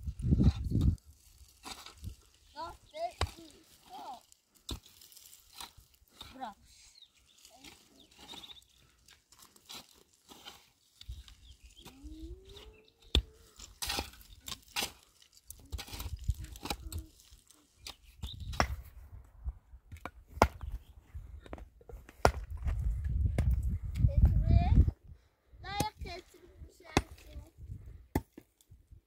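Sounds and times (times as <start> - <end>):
picks striking stony ground: 0.2 - 6.5, 13.0 - 19.0, 19.9 - 24.4, 28.1 - 28.7
low wind rumble: 22.5 - 25.7.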